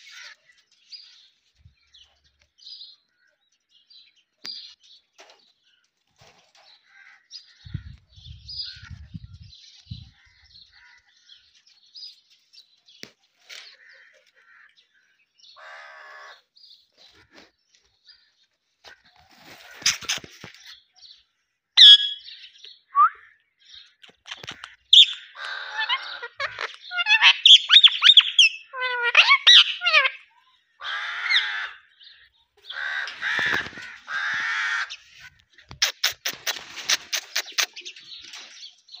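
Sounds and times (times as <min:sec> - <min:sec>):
parakeet calling: 0:21.8 - 0:22.4, 0:24.3 - 0:30.2.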